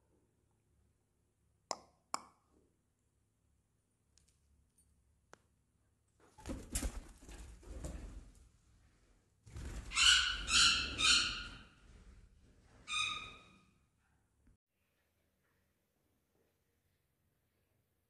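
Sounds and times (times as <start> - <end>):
bird wings flapping: 6.4 - 8.3, 9.5 - 10.0
shrill bird calls: 10.0 - 11.6, 12.9 - 13.5.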